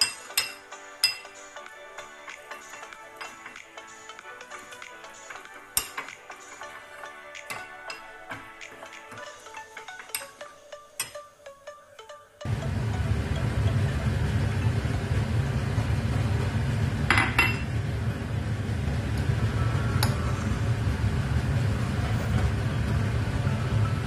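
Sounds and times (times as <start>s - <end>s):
metal spoon clinking ceramic bowl: 0.0s - 1.4s, 2.5s - 3.6s, 17.1s - 17.7s
low background rumble: 12.5s - 24.0s.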